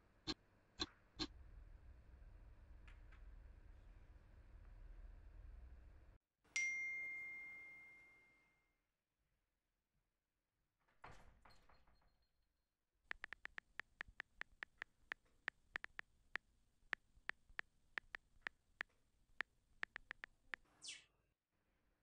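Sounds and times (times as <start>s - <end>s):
phone keyboard taps: 13.1s - 20.6s.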